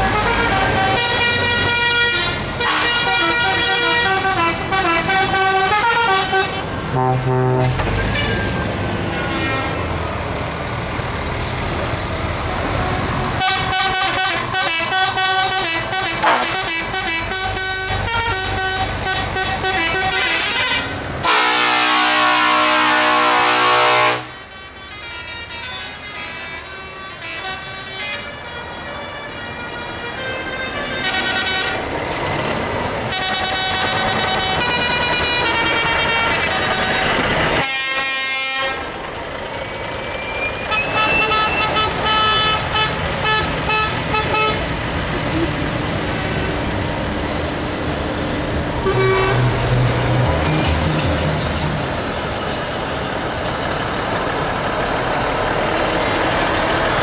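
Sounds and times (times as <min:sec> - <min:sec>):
truck air horns: 0:00.0 - 0:09.9, 0:12.5 - 0:31.9, 0:33.1 - 0:39.0, 0:40.1 - 0:44.7, 0:48.8 - 0:51.4
truck engines running: 0:00.0 - 0:57.0.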